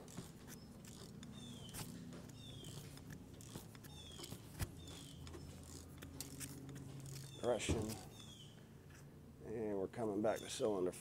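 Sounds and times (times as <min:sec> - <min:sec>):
ratchet clicks: 0:00.0 - 0:08.4
short high squeaks: 0:00.0 - 0:08.6.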